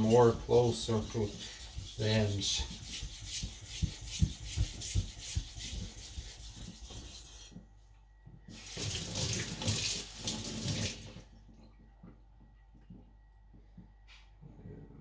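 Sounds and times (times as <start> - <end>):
blade scraping on wet whetstone: 0.7 - 7.5.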